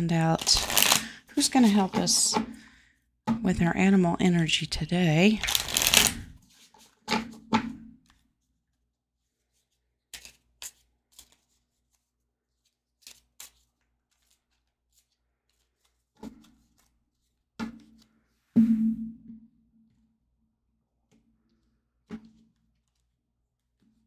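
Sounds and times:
cards being hand-shuffled: 0.3s - 2.4s, 5.3s - 7.1s, 8.0s - 18.1s, 21.1s - 24.0s.

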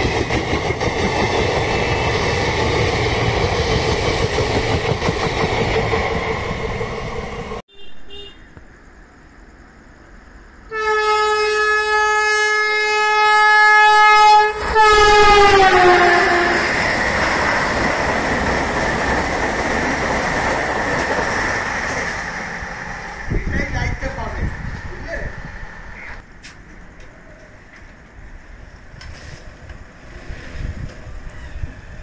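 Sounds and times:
train rushing over track: 0.0s - 7.6s, 13.3s - 32.0s
train horn blast: 10.7s - 16.7s.

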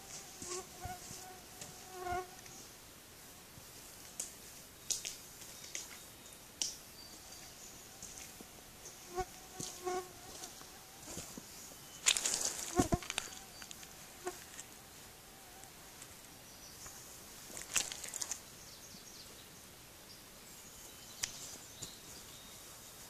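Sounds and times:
boot squelching in wet mud: 17.6s - 18.4s.

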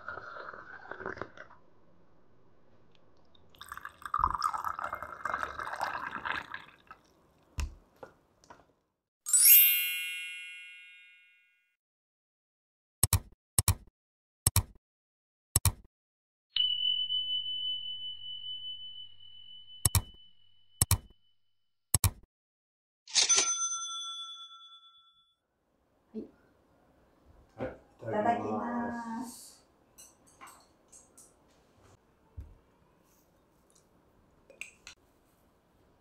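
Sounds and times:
bell-like chime: 9.3s - 11.7s, 16.6s - 20.4s, 23.2s - 25.4s
sharp clicks: 20.8s - 21.1s.

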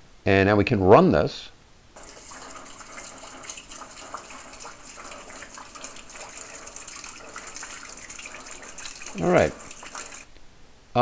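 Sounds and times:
rainwater splashing into plastic bucket: 2.0s - 10.3s
water drips and splashes: 2.0s - 10.3s.

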